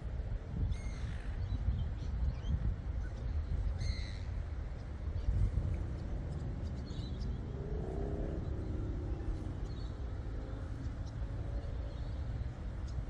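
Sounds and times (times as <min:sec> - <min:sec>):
steady low rumble: 0:00.0 - 0:13.0
passing vehicle hum: 0:04.4 - 0:13.0.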